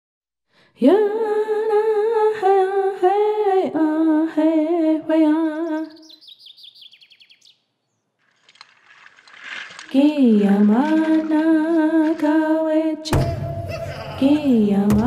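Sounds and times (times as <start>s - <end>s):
high falling chirps: 5.5s - 8.1s
person singing a chant: 10.0s - 15.0s.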